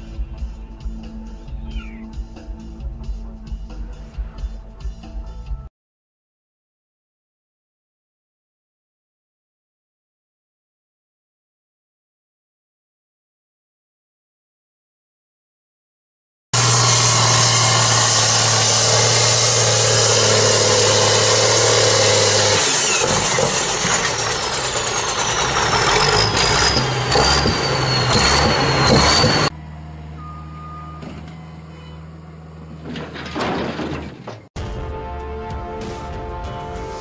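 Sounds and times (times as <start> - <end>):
tractor diesel engine revving: 16.6 - 33.0
high whistle sliding down: 24.8 - 29.5.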